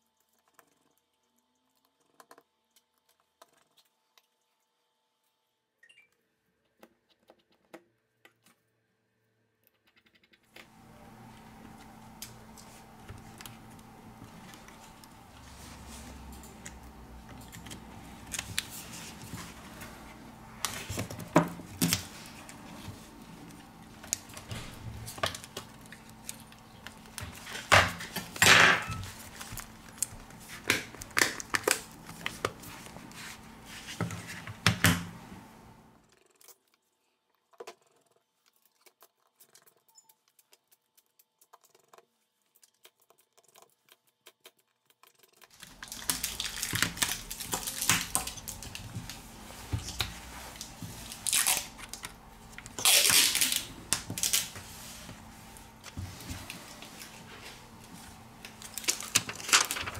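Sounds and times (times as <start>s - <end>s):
handling and rubbing noise: 10.6s - 30.7s, 32.1s - 34.6s, 48.5s - 51.3s, 53.8s - 58.5s.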